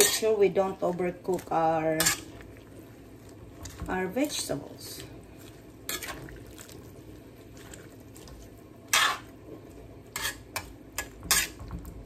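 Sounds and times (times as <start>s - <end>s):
ladle scraping a metal pan: 0.0s - 0.4s, 1.9s - 2.4s, 8.9s - 9.3s, 10.1s - 11.6s.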